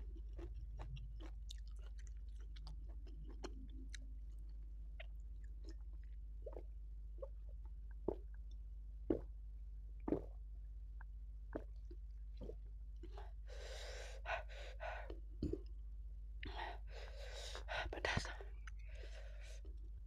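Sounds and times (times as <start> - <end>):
person gulping water: 0.1 - 8.5, 9.1 - 9.3, 10.0 - 10.4, 11.0 - 13.3, 15.1 - 15.8.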